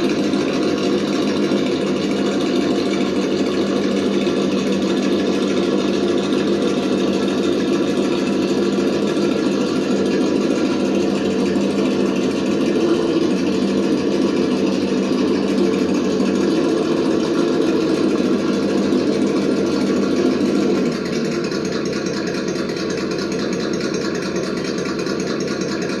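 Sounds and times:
rc truck motor drone: 0.0s - 26.0s.

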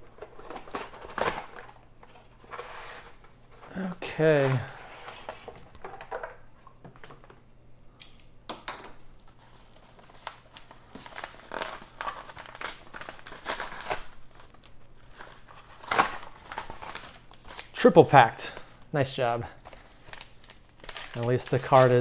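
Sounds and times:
padded envelope crinkling: 9.3s - 17.8s, 19.6s - 22.0s.

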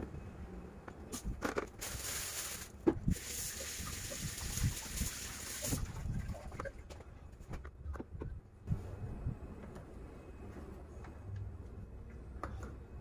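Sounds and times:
steady hiss: 1.8s - 5.8s.

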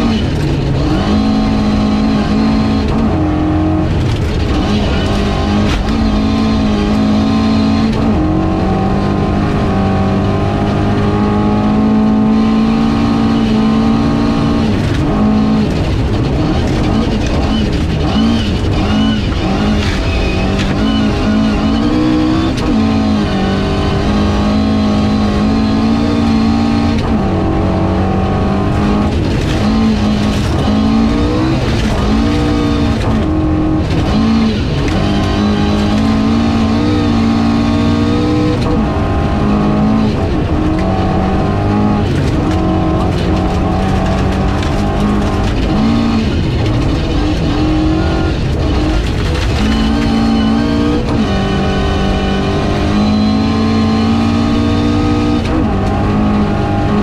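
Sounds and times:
rally car engine revving: 0.0s - 57.0s.

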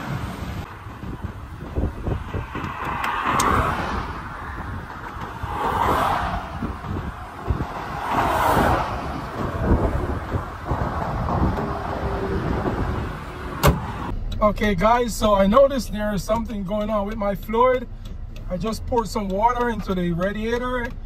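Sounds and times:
wind buffeting microphone: 0.0s - 14.1s
highway traffic rumble: 0.0s - 21.0s.

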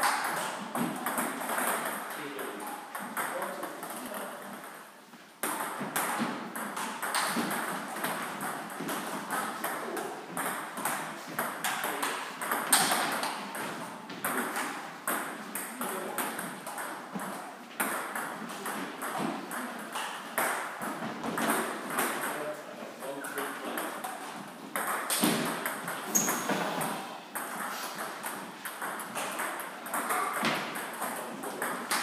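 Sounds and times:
table tennis balls clicking: 5.4s - 22.3s, 24.8s - 32.0s.

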